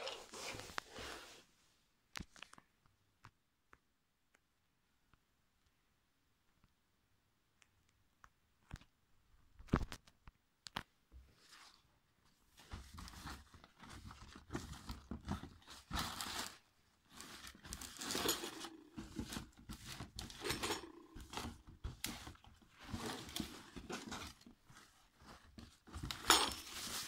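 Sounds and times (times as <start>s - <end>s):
paper gift bag rustling: 12.6s - 27.0s
tissue paper crinkling: 12.6s - 27.0s.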